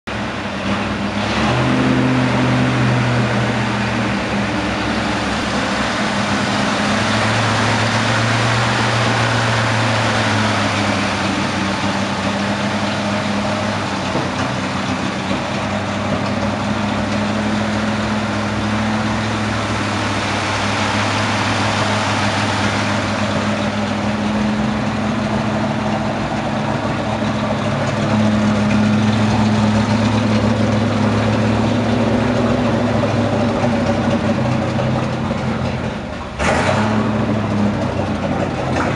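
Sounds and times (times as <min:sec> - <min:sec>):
pickup truck engine idling: 0:00.1 - 0:38.9.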